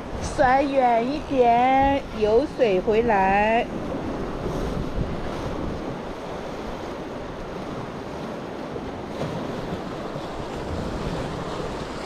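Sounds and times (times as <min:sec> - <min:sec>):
wind buffeting microphone: 0:00.0 - 0:12.0
surf breaking on rocks: 0:03.8 - 0:12.0.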